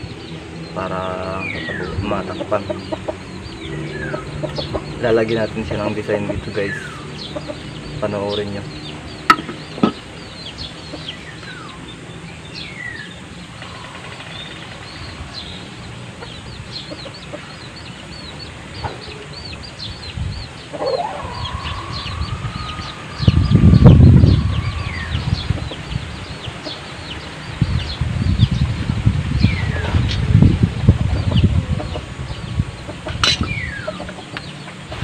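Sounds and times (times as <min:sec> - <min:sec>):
chickens peeping and chirping: 0:00.0 - 0:35.0
loud low rumble: 0:00.0 - 0:35.0
chicken long rising call: 0:20.7 - 0:25.9.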